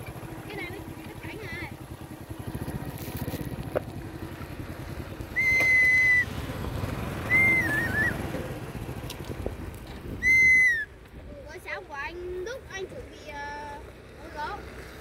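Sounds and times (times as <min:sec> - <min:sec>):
loud clear whistles: 0:05.4 - 0:06.3, 0:07.3 - 0:08.2, 0:10.2 - 0:10.9.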